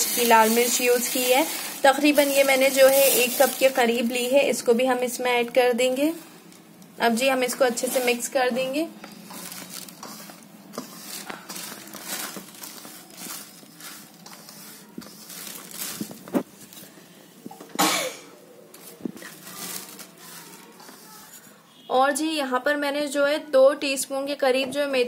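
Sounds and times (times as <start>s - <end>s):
dry spices scraped in metal bowl: 0.0s - 4.8s, 7.2s - 16.0s, 19.4s - 21.6s.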